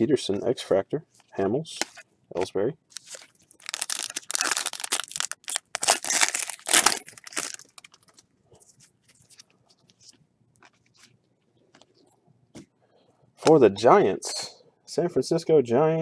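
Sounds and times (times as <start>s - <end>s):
faint rustling of cards: 0.1s - 13.6s
foil wrapper tearing and crinkling: 2.9s - 8.2s.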